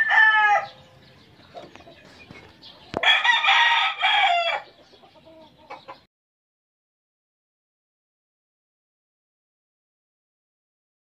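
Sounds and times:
rooster crowing: 0.0 - 0.8, 3.0 - 4.7
chicken clucks: 0.6 - 3.2, 4.5 - 6.1.

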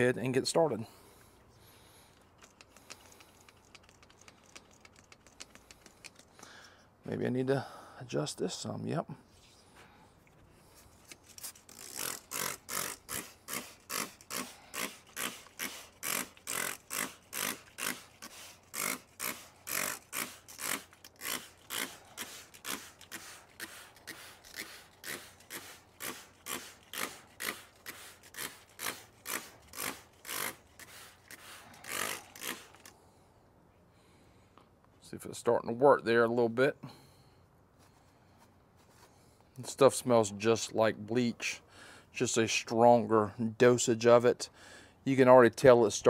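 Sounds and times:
spray bottle squirting: 2.2 - 6.3, 11.1 - 32.9.

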